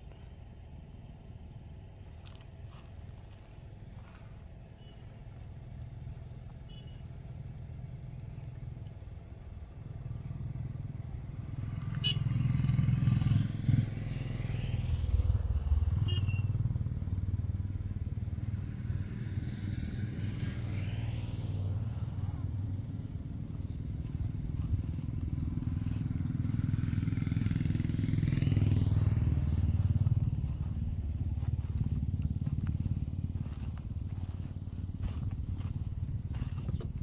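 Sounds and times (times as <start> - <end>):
low steady rumble: 0.0 - 37.0.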